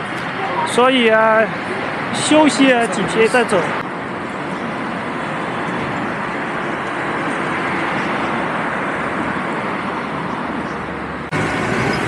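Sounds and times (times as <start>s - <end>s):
city traffic noise: 0.0s - 12.0s.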